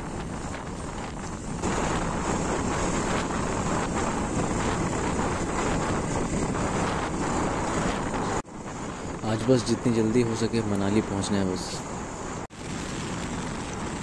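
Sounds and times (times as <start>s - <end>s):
motorcycle engine and road noise: 0.0s - 14.0s
wind rush on microphone: 0.0s - 14.0s.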